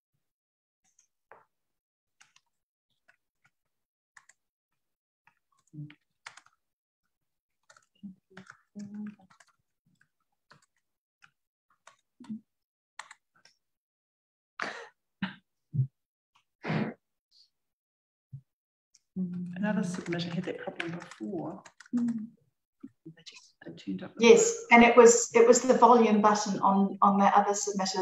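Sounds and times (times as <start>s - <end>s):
keyboard and mouse clicks: 2.2s - 3.6s, 4.2s - 4.4s, 5.3s - 6.6s, 7.6s - 12.4s, 13.0s - 13.6s, 19.9s - 22.2s.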